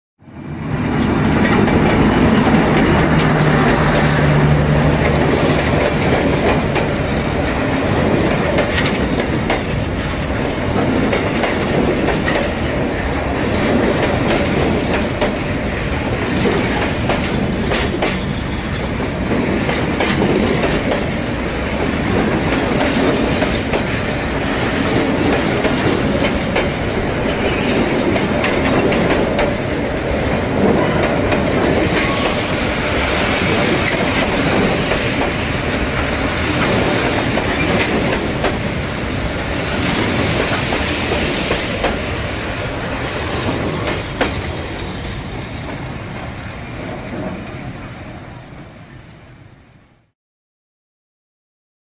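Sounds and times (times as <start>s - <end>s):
train wheels rumbling on rails: 0.3s - 49.0s
high squeal: 31.6s - 33.4s.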